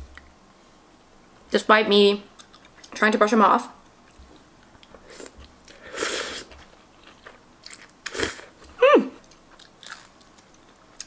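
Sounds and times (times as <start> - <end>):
person humming mm: 8.1 - 9.2.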